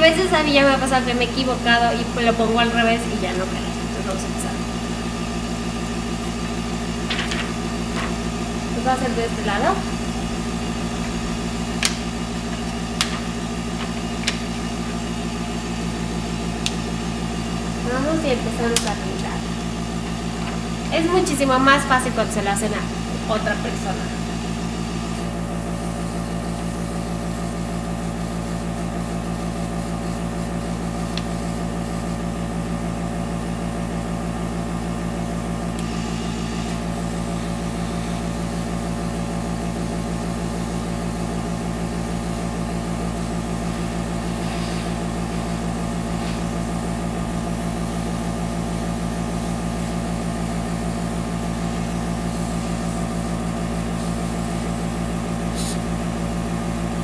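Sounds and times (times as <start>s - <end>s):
airbrush compressor humming: 0.0s - 57.0s
airbrush spraying: 44.3s - 46.6s, 53.9s - 54.6s, 55.4s - 56.0s.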